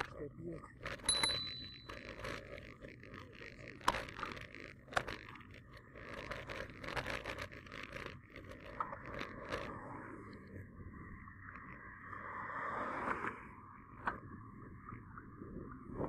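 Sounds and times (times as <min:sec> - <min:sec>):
bicycle rattling clicks: 0:00.8 - 0:09.7.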